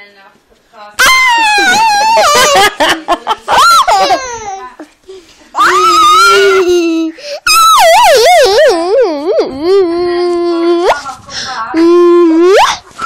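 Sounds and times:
child squealing with laughter: 0:01.0 - 0:02.7, 0:03.5 - 0:04.4, 0:05.6 - 0:09.0, 0:12.0 - 0:12.8.

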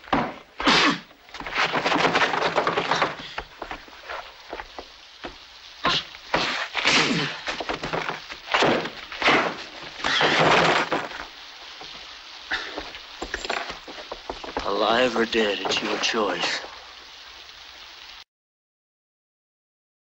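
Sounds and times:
wood breaking: 0:00.0 - 0:12.1, 0:12.7 - 0:16.2.

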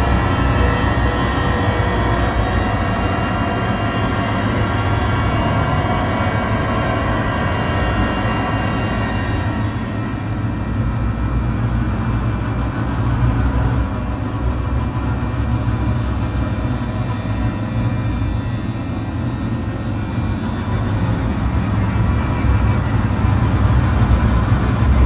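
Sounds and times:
sustained tones: 0:00.0 - 0:11.8
low rumbling drone: 0:00.0 - 0:25.0.

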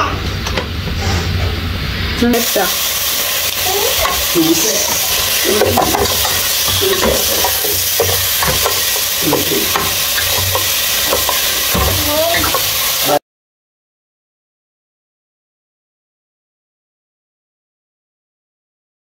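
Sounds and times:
meat sizzling in a pot: 0:02.4 - 0:13.2
wooden spatula scraping pot: 0:02.8 - 0:13.1.

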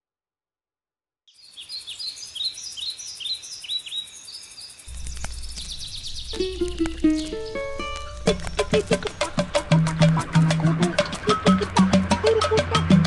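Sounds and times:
bird chirping: 0:01.3 - 0:13.0
musical notes: 0:06.3 - 0:13.0.

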